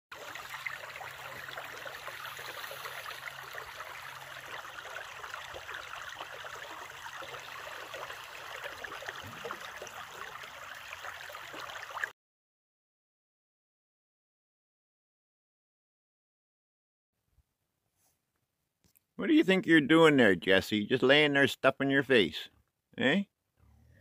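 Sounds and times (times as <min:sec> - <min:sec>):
brook babbling over rocks: 0:00.1 - 0:12.1.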